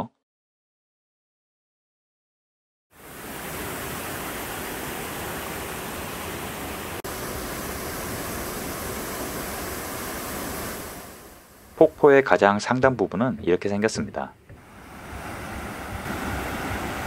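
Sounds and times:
waterfall roaring: 3.0 - 12.0, 14.6 - 17.0.

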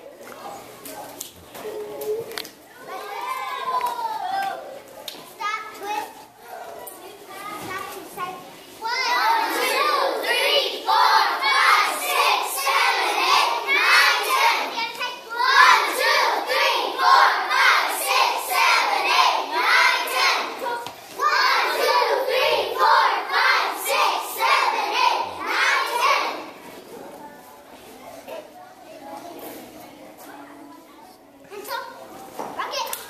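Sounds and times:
children chanting rhythmically: 8.8 - 26.6.

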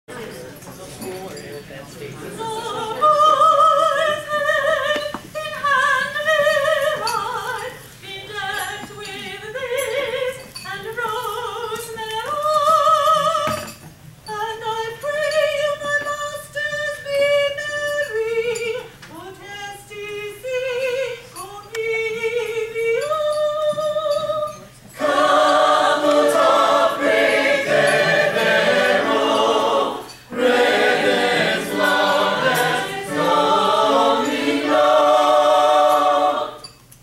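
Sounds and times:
choir singing in harmony: 25.0 - 36.8.

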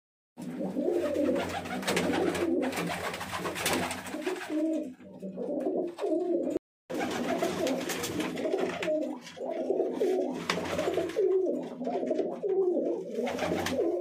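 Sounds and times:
pigeons cooing: 0.4 - 14.0.

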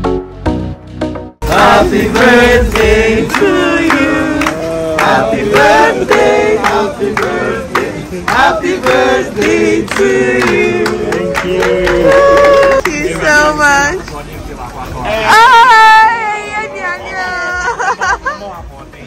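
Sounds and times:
group singing: 1.4 - 12.6
hand-clapping: 2.1 - 13.4.

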